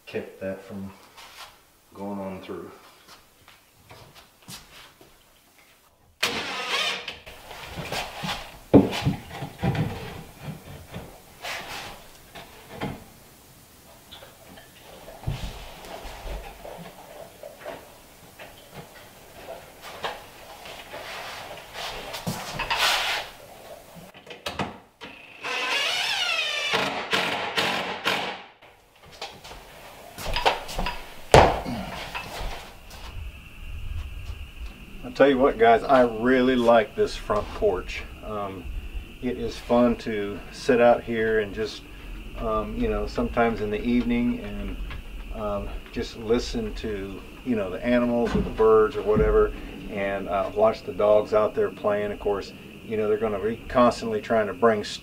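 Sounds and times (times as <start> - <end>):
wood scraping: 6.3 - 13.1, 14.7 - 24.2
wood knocking on wood: 30.2 - 31.8.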